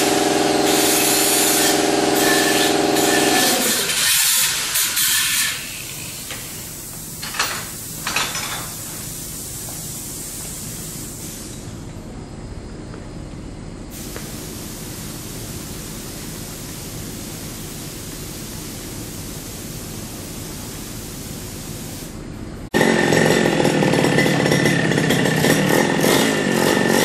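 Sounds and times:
steady hiss: 4.6s - 12.0s, 13.9s - 22.4s
motorbike engine running: 22.7s - 27.0s.

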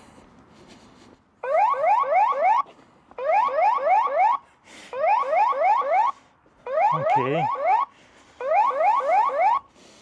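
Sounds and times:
rising electronic alarm whoops: 5.0s - 9.7s.

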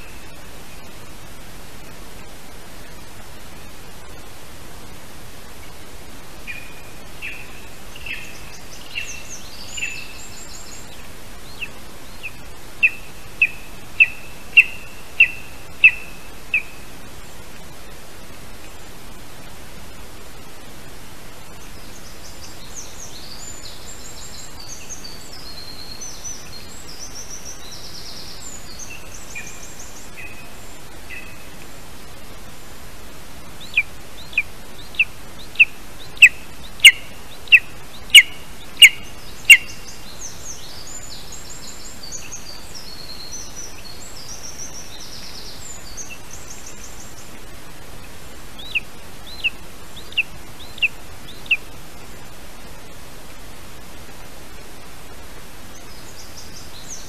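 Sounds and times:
microphone hiss: 0.0s - 57.0s
songbirds singing faintly: 0.0s - 57.0s
eagle calling: 11.6s - 16.8s, 33.6s - 40.0s, 48.6s - 51.7s.

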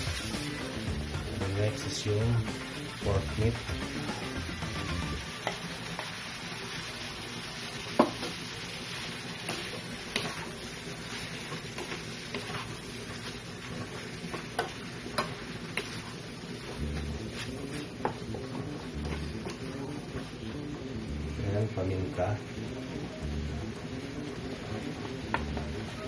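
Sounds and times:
meat sizzling in a wok: 0.0s - 26.0s
spatula scraping pan: 9.4s - 20.0s.

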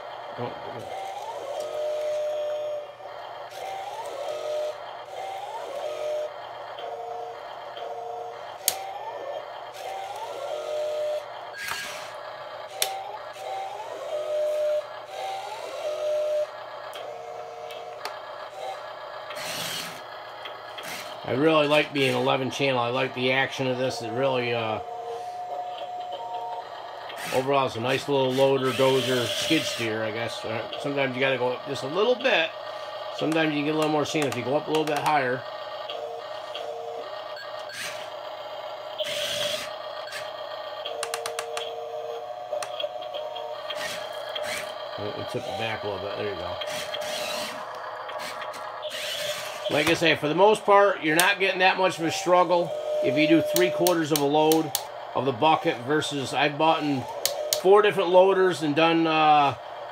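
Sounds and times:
electronic engine sound effect: 0.0s - 59.9s
toy electric motors whirring: 0.0s - 59.9s
clicks: 33.2s - 35.2s, 40.1s - 41.8s, 42.5s - 44.5s, 53.4s - 54.9s, 57.0s - 57.7s.

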